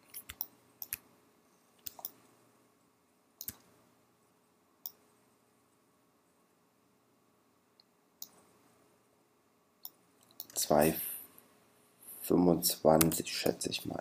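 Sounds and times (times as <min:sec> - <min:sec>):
computer mouse buttons clicking: 0:00.1 - 0:01.0, 0:01.8 - 0:02.2, 0:03.4 - 0:03.7, 0:07.8 - 0:08.4.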